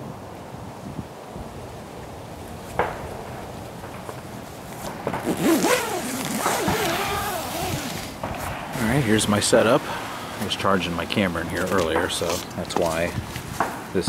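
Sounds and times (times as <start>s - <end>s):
tent zipper being opened: 4.7s - 9.0s.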